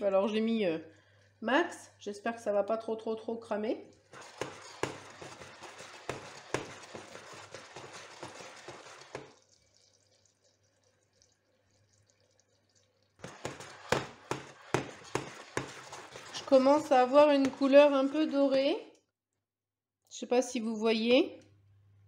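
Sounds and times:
syrup boiling and popping: 0:03.8 - 0:19.1.

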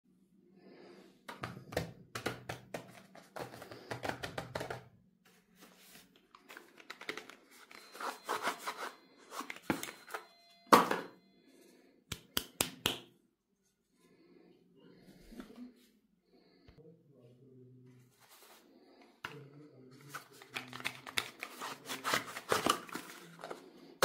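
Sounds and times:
papery rustles: 0:19.9 - 0:23.8.

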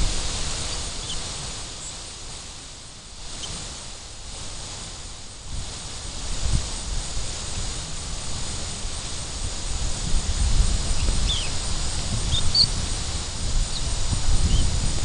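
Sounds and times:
wind buffeting microphone: 0:00.0 - 0:01.6, 0:03.2 - 0:15.0
bird chirps: 0:00.7 - 0:01.2, 0:11.0 - 0:11.6, 0:12.2 - 0:12.8, 0:14.5 - 0:14.7.

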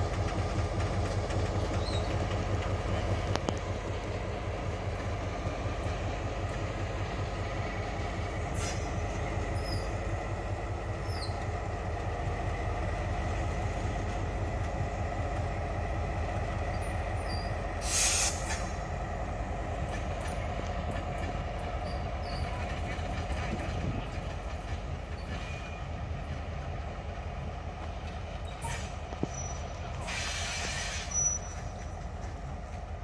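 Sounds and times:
locomotive engine drone: 0:00.0 - 0:33.0
brief hiss: 0:08.5 - 0:09.0, 0:17.8 - 0:18.8, 0:30.0 - 0:31.1.

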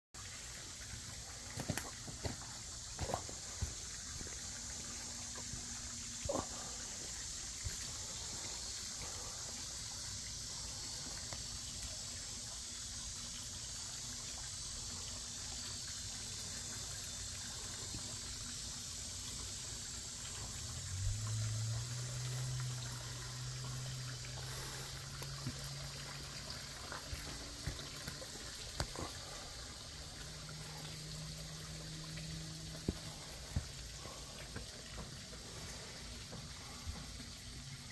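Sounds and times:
outdoor background hiss: 0:00.2 - 0:37.9
low motor hum: 0:19.2 - 0:37.9.

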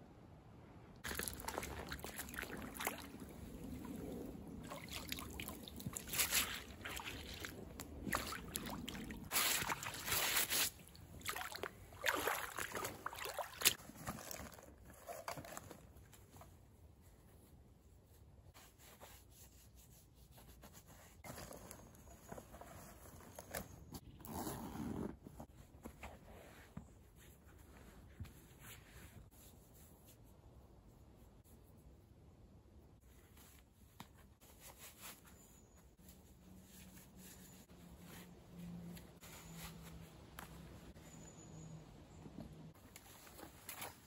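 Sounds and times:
water sloshing and splashing: 0:01.0 - 0:15.6.

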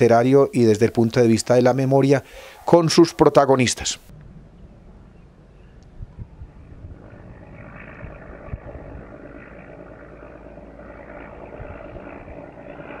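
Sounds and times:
low rumble: 0:04.1 - 0:13.0
vehicle engine running: 0:04.1 - 0:13.0.

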